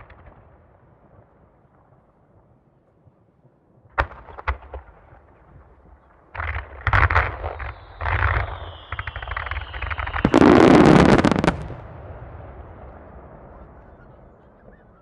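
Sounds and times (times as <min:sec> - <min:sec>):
fireworks crackling bursts: 0:04.0 - 0:13.8
firework bang: 0:06.4 - 0:14.1
falling firework whistle: 0:06.8 - 0:11.7.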